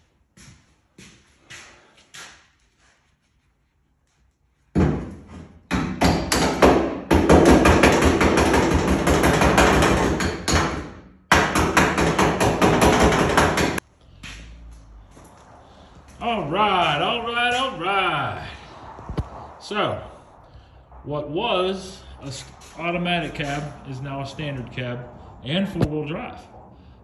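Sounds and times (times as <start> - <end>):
hammer blows on sheet steel: 4.7 - 14.5.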